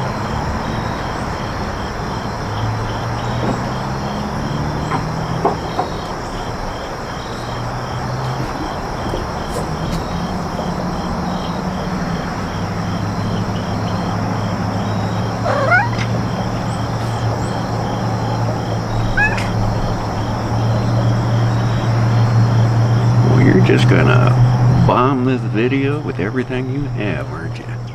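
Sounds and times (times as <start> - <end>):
crickets chirping: 0.0 - 27.9
cat meowing: 15.4 - 16.5, 18.9 - 19.8.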